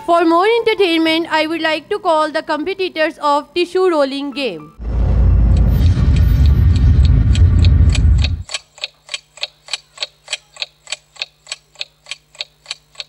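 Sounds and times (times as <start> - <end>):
loud low rumble: 4.8 - 8.4
clock ticking: 6.0 - 13.0.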